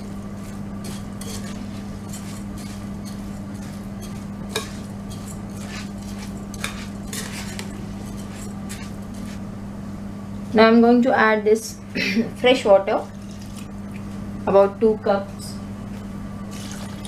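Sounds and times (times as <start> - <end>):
utensil scraping bowl: 0.0 - 9.5
steady low hum: 0.0 - 17.0.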